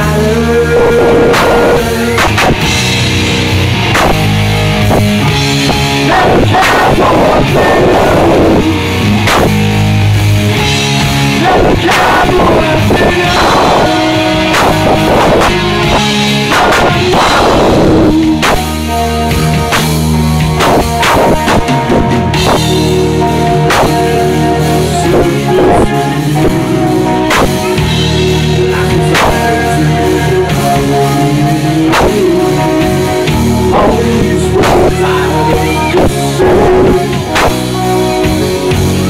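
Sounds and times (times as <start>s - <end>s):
heavy metal band playing: 0.0s - 39.0s
drum and cymbal hits: 1.1s - 39.0s.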